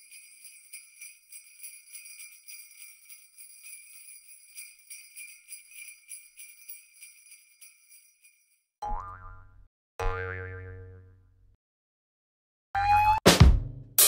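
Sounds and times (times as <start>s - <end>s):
jingle bells shaken: 0.0s - 8.7s.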